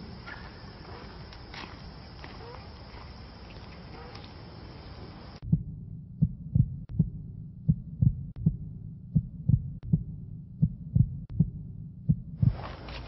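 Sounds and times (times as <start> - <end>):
heartbeat thumps: 5.4 - 12.8.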